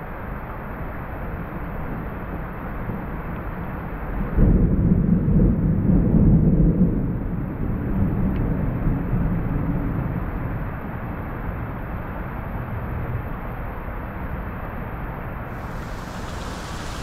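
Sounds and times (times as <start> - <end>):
rain hissing: 15.5 - 17.0
thunder rumbling: 15.5 - 17.0.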